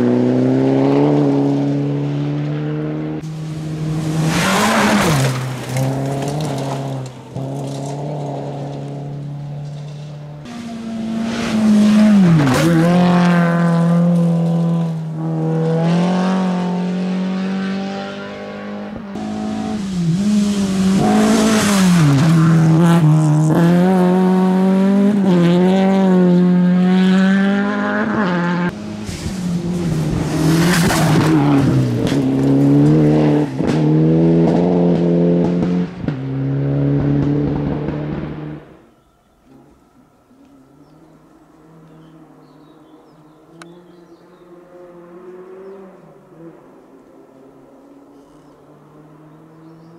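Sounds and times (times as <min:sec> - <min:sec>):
rally car engines revving: 0:00.0 - 0:38.9, 0:40.4 - 0:49.9
tyres on gravel rushing past: 0:03.3 - 0:15.0.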